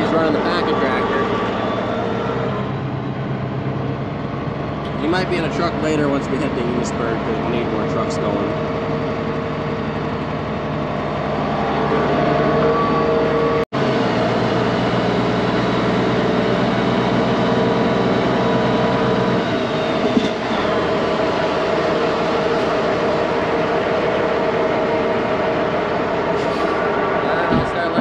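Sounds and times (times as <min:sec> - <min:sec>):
diesel truck engine running: 0:00.0 - 0:28.0.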